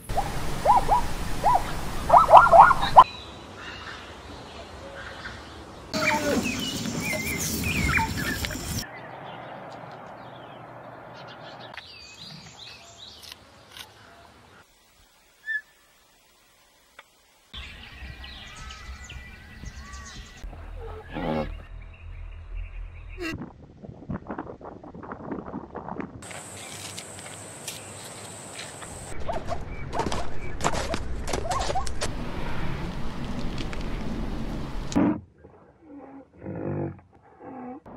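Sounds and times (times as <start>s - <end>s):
birds chirping: 0.0s - 15.9s, 17.6s - 23.4s
light outdoor hiss: 0.0s - 20.4s, 26.2s - 29.2s
faint steady hiss: 11.8s - 19.3s.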